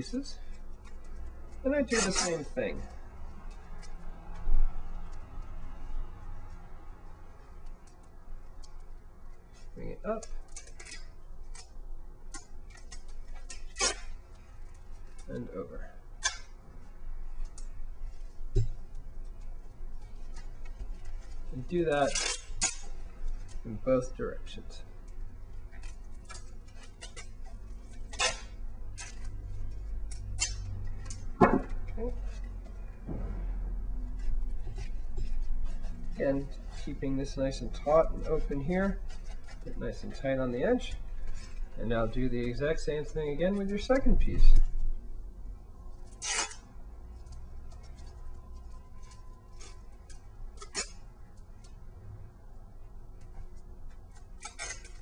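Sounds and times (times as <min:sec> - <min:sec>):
tape rasping: 0:00.0 - 0:45.0, 0:45.8 - 0:51.8, 0:52.8 - 0:55.0
low steady hum: 0:00.0 - 0:55.0
tape ripping off roll: 0:01.9 - 0:02.5, 0:12.3 - 0:14.4, 0:21.3 - 0:23.6, 0:25.7 - 0:29.4, 0:46.0 - 0:46.7, 0:54.1 - 0:55.0
tape clicks and crinkles: 0:07.5 - 0:15.5, 0:17.3 - 0:23.8, 0:25.0 - 0:33.0, 0:45.9 - 0:51.8, 0:53.1 - 0:55.0.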